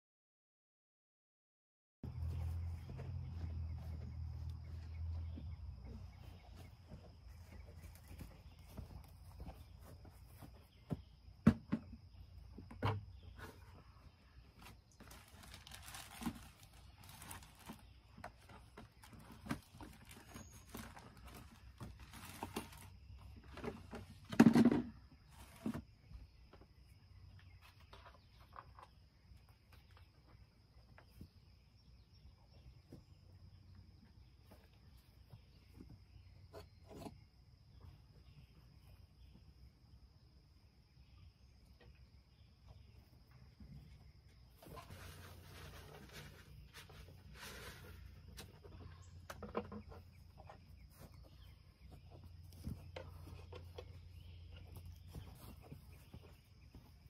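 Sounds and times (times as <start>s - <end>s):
rustling: 13.3s - 24.3s, 44.5s - 49.2s.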